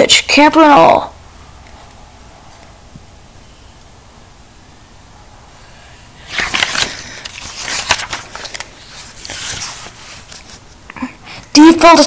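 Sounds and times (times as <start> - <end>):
paper rustling and crackling: 6.2 - 10.9
page turning clicks: 6.3 - 10.5.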